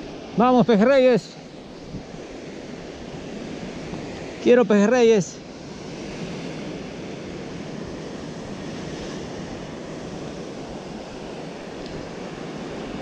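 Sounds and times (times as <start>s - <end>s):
wind noise on microphone: 1.8s - 4.3s.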